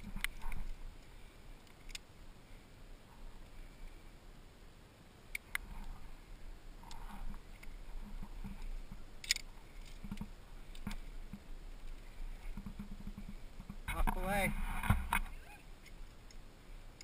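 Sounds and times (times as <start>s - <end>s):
metal carabiners clicking: 9.2s - 10.9s.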